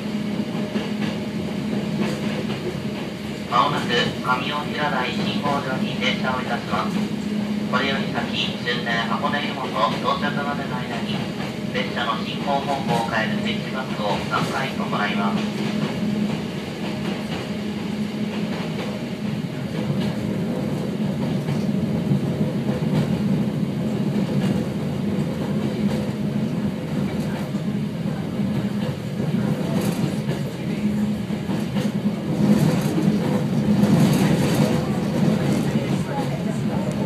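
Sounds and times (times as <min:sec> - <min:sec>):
electric train humming: 0:00.0 - 0:37.0
wheels clattering on rails: 0:28.4 - 0:37.0.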